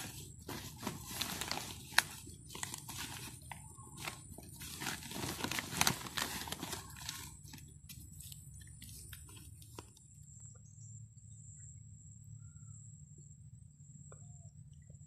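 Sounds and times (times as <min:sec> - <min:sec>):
plastic sack rustling: 0:00.0 - 0:10.0
soil crunching: 0:00.0 - 0:10.0.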